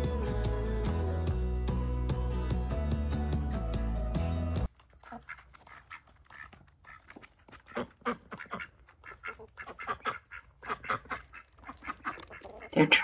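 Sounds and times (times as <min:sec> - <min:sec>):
background music: 0:00.0 - 0:04.7
ducks quacking: 0:05.0 - 0:13.0.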